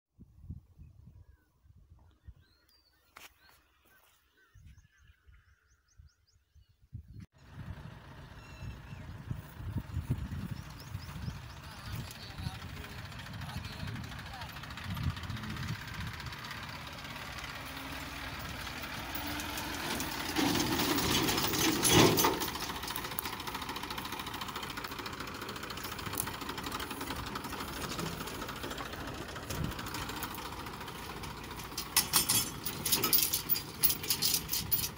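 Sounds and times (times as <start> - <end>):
tractor diesel engine running: 7.2 - 34.9.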